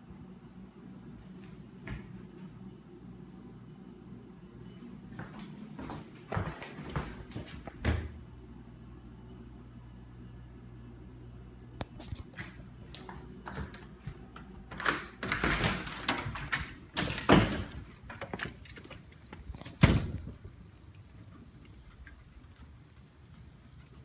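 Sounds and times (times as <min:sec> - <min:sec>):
door knocks and thumps: 0:19.7 - 0:20.4.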